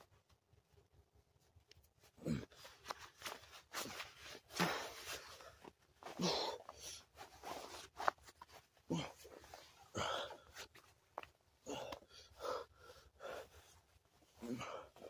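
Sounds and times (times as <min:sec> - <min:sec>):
cloth rustling: 0:00.0 - 0:11.6
man grunting: 0:02.2 - 0:02.6, 0:08.9 - 0:09.3, 0:14.4 - 0:14.9.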